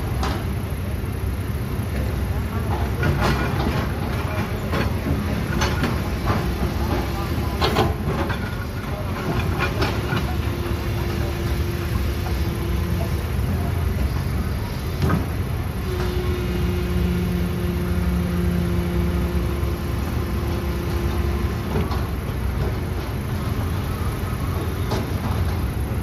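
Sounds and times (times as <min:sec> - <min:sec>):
diesel engines rumbling: 0:00.0 - 0:26.0
droning tone: 0:15.7 - 0:21.7.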